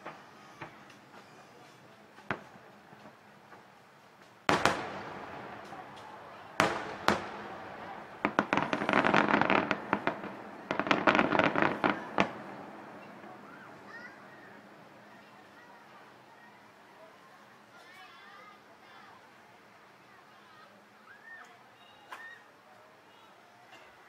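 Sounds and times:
firework shells bursting: 0:04.4 - 0:15.2.

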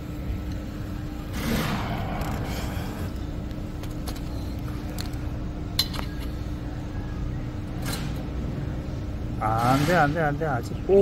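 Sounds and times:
steady low rumble: 0:00.0 - 0:05.8.

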